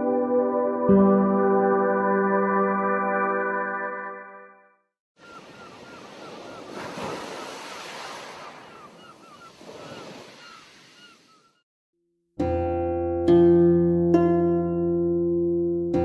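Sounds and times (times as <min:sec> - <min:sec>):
ocean waves washing in: 0:05.2 - 0:11.4.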